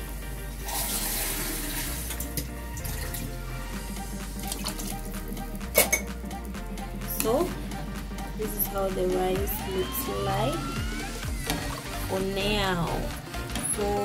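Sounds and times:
background music: 0:00.0 - 0:14.0
water pouring into pot: 0:00.1 - 0:03.3.

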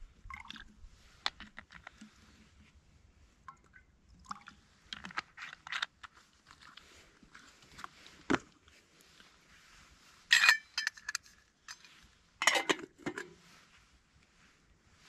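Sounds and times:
metal lid ringing clink: 0:10.3 - 0:11.1, 0:12.4 - 0:13.3
metal on metal clatter: 0:10.3 - 0:13.4.

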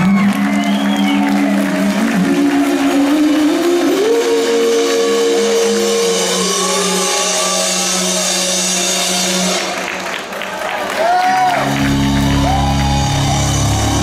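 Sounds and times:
distorted electric guitars and bass: 0:11.5 - 0:14.0.

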